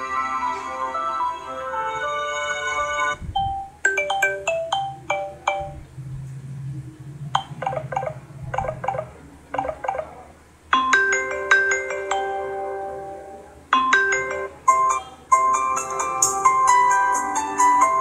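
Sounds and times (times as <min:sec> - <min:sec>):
sustained chord-like ringtone: 0:00.0 - 0:05.9, 0:07.4 - 0:18.0
marimba-like ringtone melodies: 0:02.1 - 0:05.9, 0:07.4 - 0:18.0.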